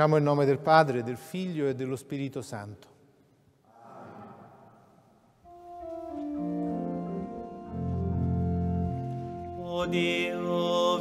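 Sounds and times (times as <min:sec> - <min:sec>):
organ playing sustained chords: 0:05.4 - 0:11.0.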